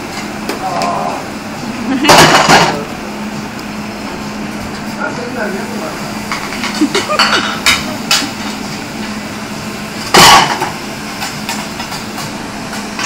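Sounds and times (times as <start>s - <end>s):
steady hum: 0.0s - 13.0s
cooking tools clanking on a griddle: 2.0s - 2.8s, 6.2s - 8.8s, 10.1s - 13.0s.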